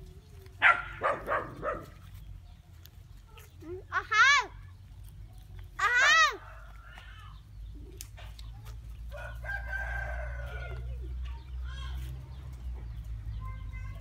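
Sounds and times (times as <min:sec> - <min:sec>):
rooster crowing: 0:09.1 - 0:10.9.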